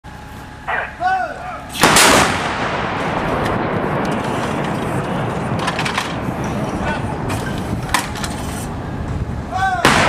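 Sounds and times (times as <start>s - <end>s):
howitzer blast with rolling echo: 0.6s - 10.0s
person shouting: 0.7s - 1.7s, 9.5s - 10.0s.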